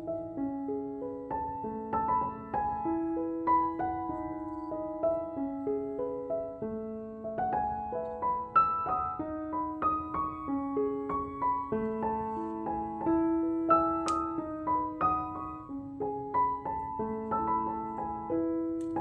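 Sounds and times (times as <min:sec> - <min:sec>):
gentle piano melody: 0:00.0 - 0:19.0
sharp click: 0:14.0 - 0:14.3.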